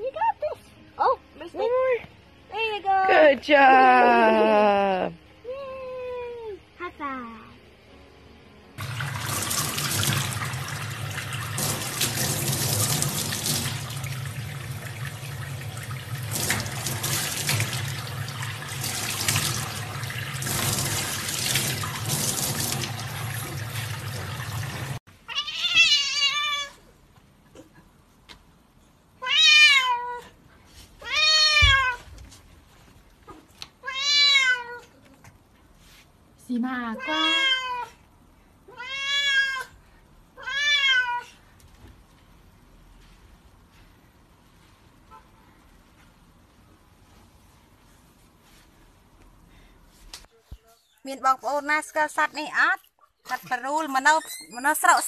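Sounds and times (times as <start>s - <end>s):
tap water running into sink: 8.8s - 25.0s
cat meowing: 25.3s - 26.8s, 29.2s - 30.2s, 33.8s - 35.0s, 37.0s - 38.0s, 38.7s - 39.8s, 40.4s - 41.4s.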